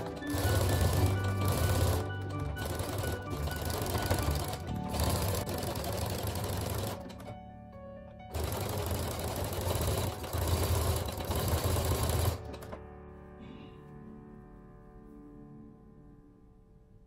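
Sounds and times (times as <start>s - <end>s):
sewing machine stitching: 0.0s - 7.4s, 8.3s - 12.8s.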